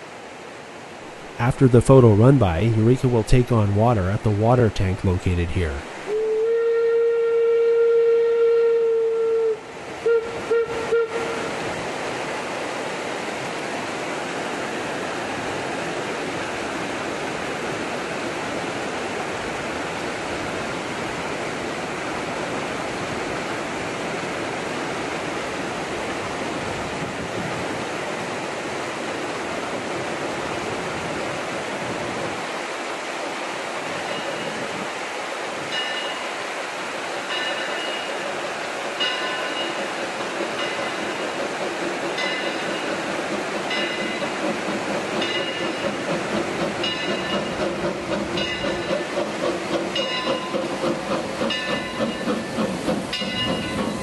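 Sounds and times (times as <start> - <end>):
river rushing: 0.0 - 54.0
steam whistle blasts: 6.1 - 11.6.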